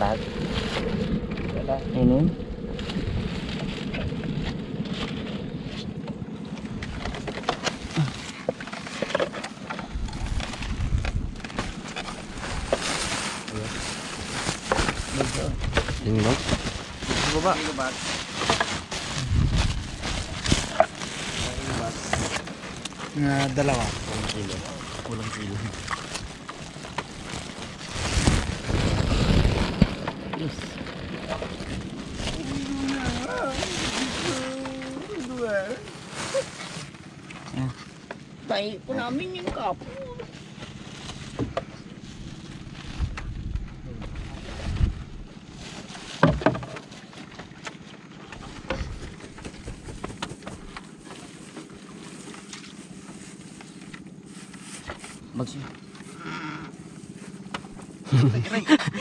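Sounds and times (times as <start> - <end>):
low rumble: 0.0 - 46.0
rustling: 6.7 - 58.1
wind on microphone: 9.9 - 12.8, 19.0 - 20.8, 42.7 - 45.5.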